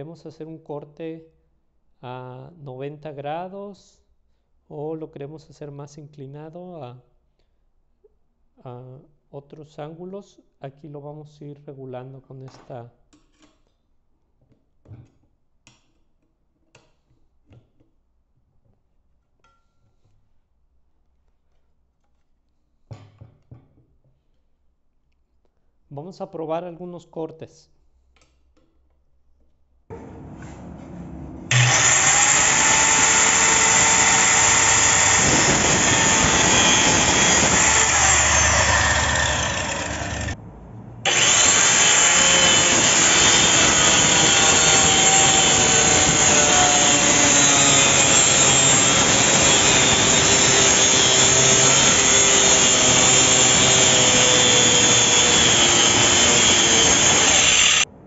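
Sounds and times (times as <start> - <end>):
circular saw cutting wood: 30.0 - 40.4, 41.0 - 57.9.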